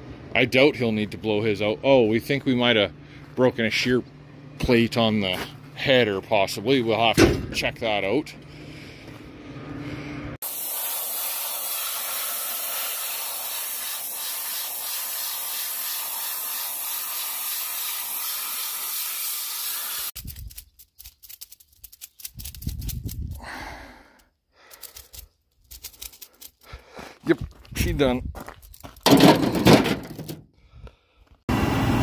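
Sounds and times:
compressed air blow gun hissing: 10.4 - 20.2
knocks and rattles: 28.6 - 30.4.

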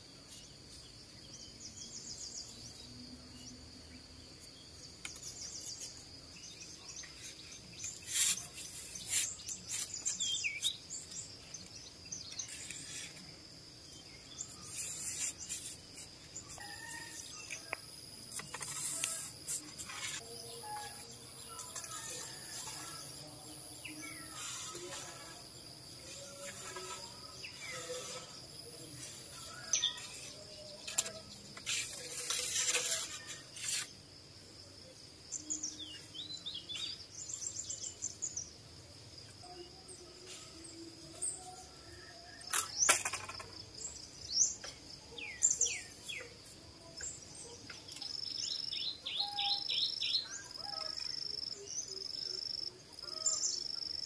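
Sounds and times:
small birds chirping: 0.3 - 34.0
high-pitched insect drone: 14.3 - 33.9.

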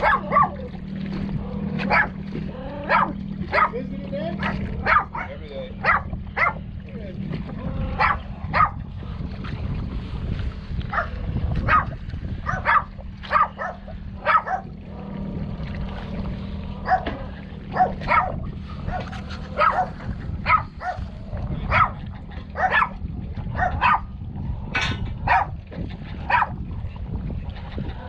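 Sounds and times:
dog barking: 0.0 - 0.6, 1.8 - 2.2, 2.9 - 3.8, 4.4 - 6.6, 8.0 - 8.8, 10.9 - 14.7, 16.8 - 21.0, 21.7 - 22.0, 22.6 - 23.0, 23.6 - 24.1, 25.3 - 25.6, 26.3 - 26.5
low engine hum: 0.0 - 28.0.

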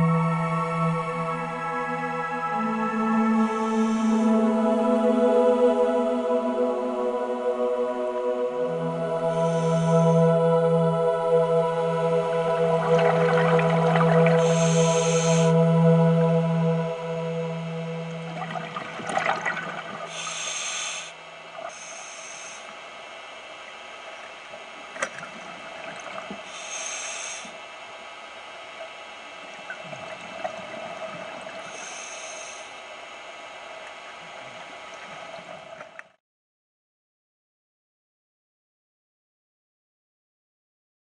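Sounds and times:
steady hum: 0.0 - 36.2
regulator breathing bubble bursts: 3.4 - 4.4, 12.6 - 15.7, 18.2 - 22.8, 25.6 - 27.6, 29.7 - 32.9.

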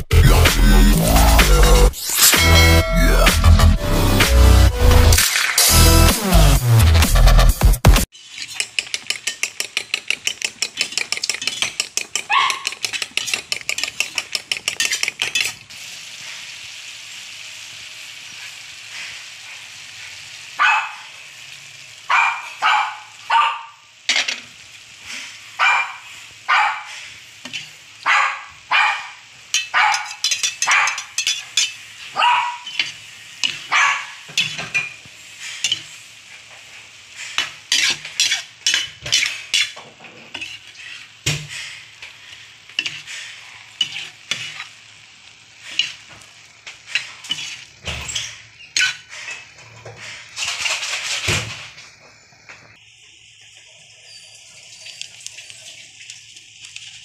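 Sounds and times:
frying sizzle: 3.4 - 57.0
metal spatula scraping a pan: 8.1 - 16.5, 26.9 - 27.9, 29.5 - 51.5
eggs beaten in a bowl: 8.5 - 15.5.

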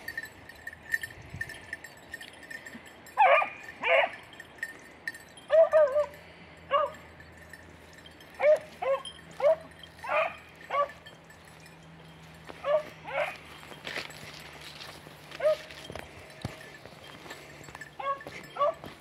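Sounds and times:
dog yelping: 3.2 - 4.2, 5.5 - 6.1, 8.4 - 11.0, 12.6 - 13.4, 15.4 - 15.7, 18.0 - 18.8.

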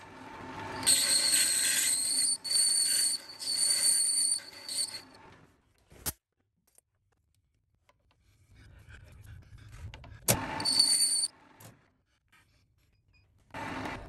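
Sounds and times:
lathe tool squealing on metal: 0.6 - 5.3, 10.5 - 11.3.

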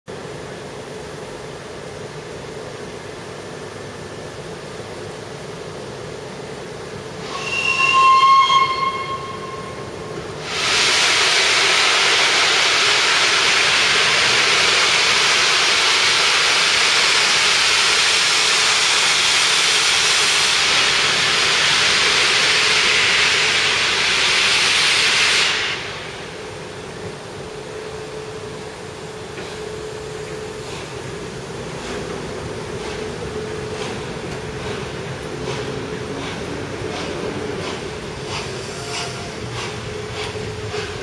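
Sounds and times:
loud hiss of steam: 7.1 - 41.0
steam locomotive whistle: 7.2 - 12.1.

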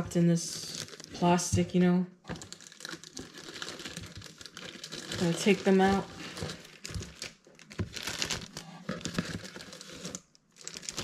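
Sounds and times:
plastic wrapping crinkling: 0.5 - 11.0.

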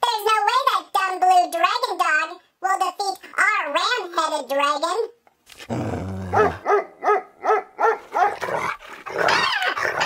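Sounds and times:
cartoon creature growl: 5.7 - 6.6.

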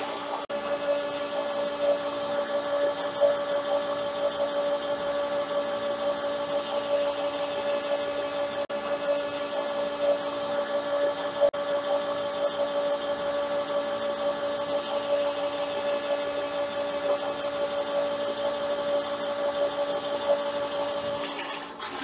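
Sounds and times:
metal lathe whining: 0.0 - 22.0.

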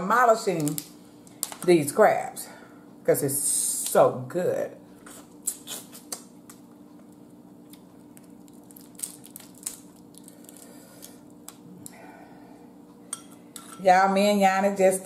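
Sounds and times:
wet squishing and sucking: 5.1 - 6.2
crab shell snapping: 7.7 - 11.6.

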